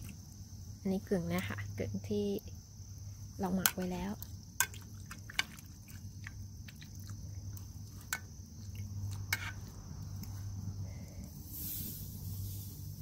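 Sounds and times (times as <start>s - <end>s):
wet squelching of meat: 4.2s - 10.7s
hiss: 11.0s - 13.0s.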